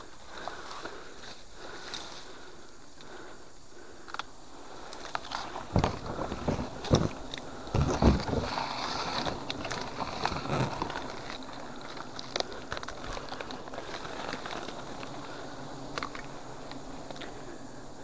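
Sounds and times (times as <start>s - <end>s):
leafy branches rustling: 0.0s - 18.0s
branches knocking and scraping: 4.8s - 17.4s.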